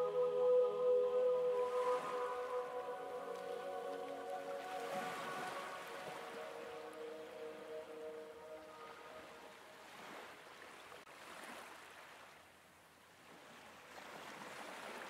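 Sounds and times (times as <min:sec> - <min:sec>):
held musical tone: 0:00.0 - 0:10.0.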